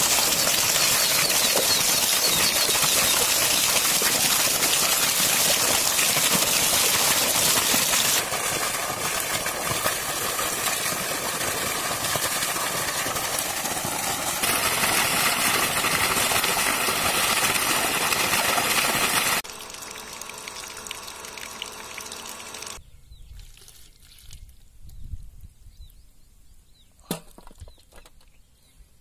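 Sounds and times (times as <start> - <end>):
water gushing from pipe: 0.0 - 22.8.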